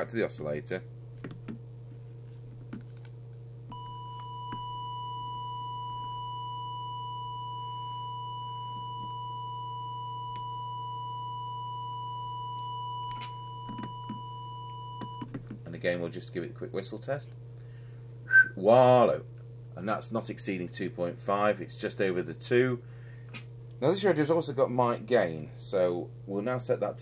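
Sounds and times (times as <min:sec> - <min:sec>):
low hum: 0:00.0 - 0:20.3
steady test tone: 0:03.7 - 0:15.3.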